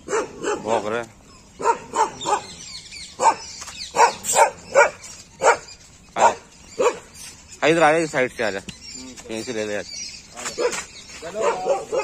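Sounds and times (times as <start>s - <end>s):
dogs barking: 0.0s - 7.4s, 10.4s - 12.0s.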